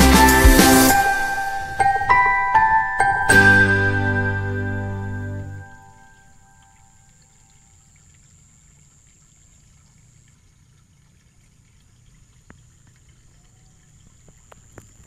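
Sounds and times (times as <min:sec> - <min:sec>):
thin high whine: 0:00.0 - 0:06.3
water trickling: 0:00.0 - 0:15.0
faint ticks: 0:06.6 - 0:15.0.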